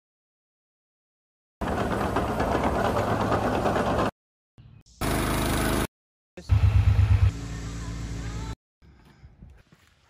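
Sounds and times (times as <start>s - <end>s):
loader engine running rough: 1.6s - 4.1s.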